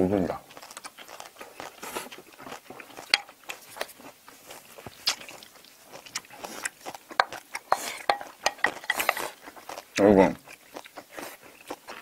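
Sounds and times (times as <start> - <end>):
chewing and crunching food: 0.0 - 12.0
mouth clicks and smacks: 4.8 - 10.0.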